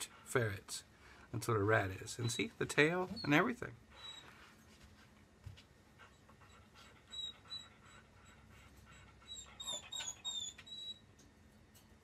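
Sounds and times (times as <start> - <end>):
ferret squeaking: 2.1 - 4.3, 9.3 - 11.0.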